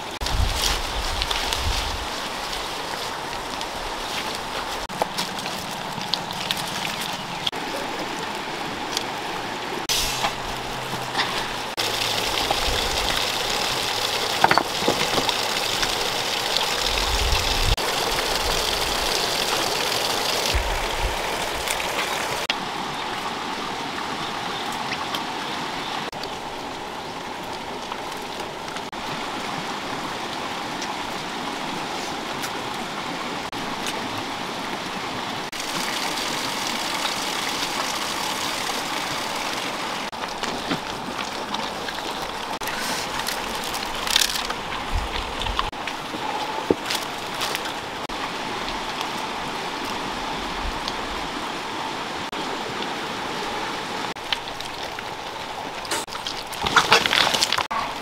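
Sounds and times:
waterfall rushing over rocks: 0:02.1 - 0:44.0.

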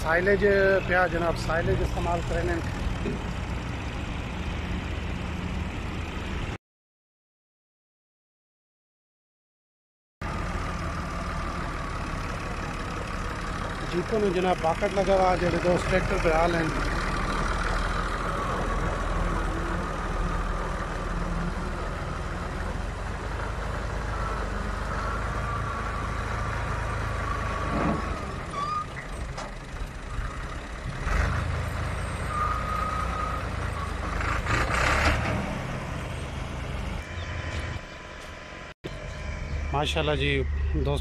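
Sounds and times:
tractor diesel engine running: 0:00.0 - 0:06.5, 0:10.2 - 0:41.0
high whine: 0:37.0 - 0:41.0.

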